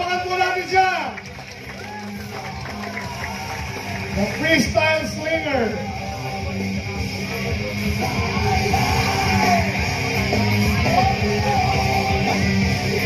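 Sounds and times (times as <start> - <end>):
loud rock music: 0.0 - 13.0
person singing: 5.7 - 13.0.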